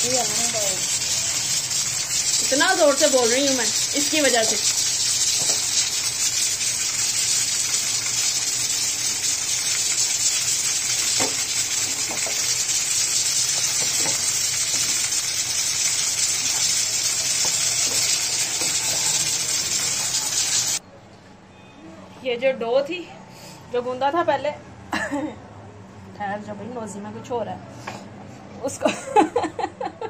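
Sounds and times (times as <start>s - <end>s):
food sizzling in oil: 0.0s - 20.8s.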